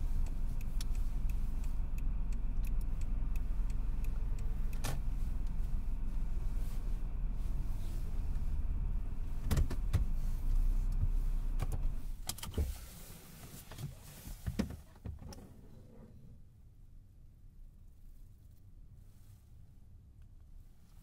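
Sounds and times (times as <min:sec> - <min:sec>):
car engine rumble: 0:00.0 - 0:21.0
clicks and knocks in car: 0:09.4 - 0:10.2.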